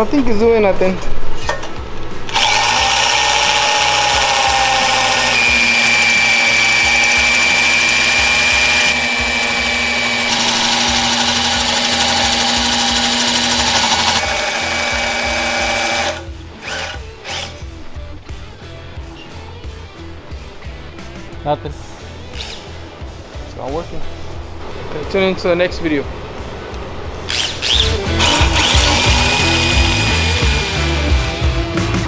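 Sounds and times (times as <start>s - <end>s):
electric drill whining: 2.3s - 17.6s, 27.3s - 31.3s.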